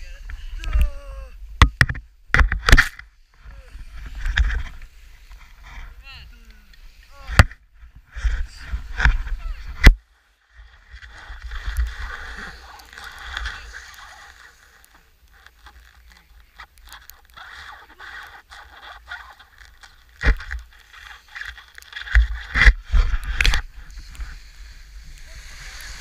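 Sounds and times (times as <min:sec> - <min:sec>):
skis scraping over snow: 0:10.6 - 0:26.0.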